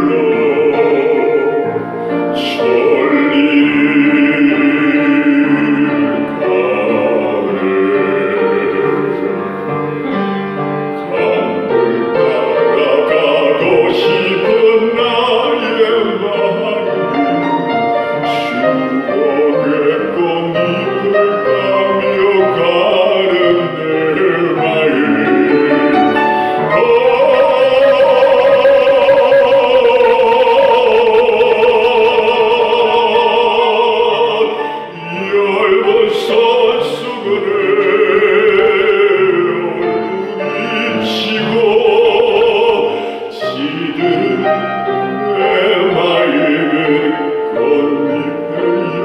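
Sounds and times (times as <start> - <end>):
piano accompaniment: 0.0 - 49.0
bass voice singing: 11.0 - 49.0.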